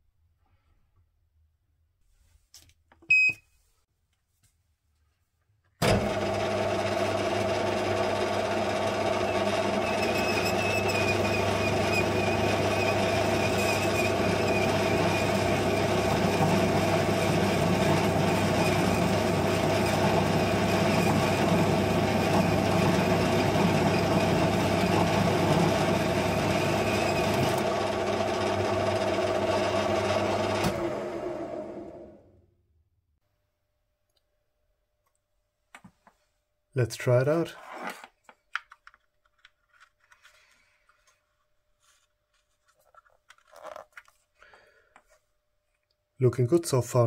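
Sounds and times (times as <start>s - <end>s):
metal lathe running: 6.0s - 31.0s.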